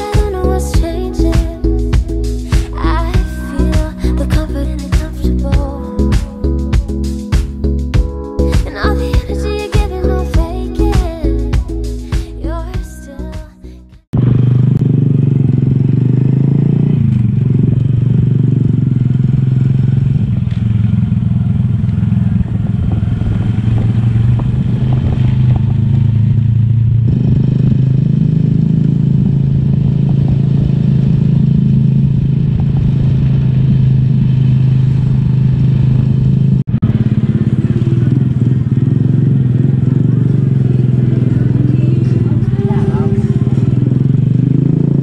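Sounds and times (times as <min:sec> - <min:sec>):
small motorcycle engine running: 0:14.2 - 0:45.0.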